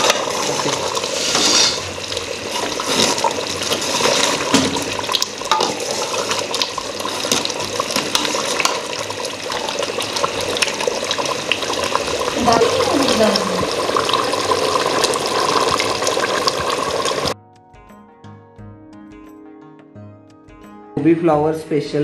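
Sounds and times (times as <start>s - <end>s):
metal ladle stirring: 0.0s - 9.0s
curry boiling and bubbling: 0.0s - 17.4s.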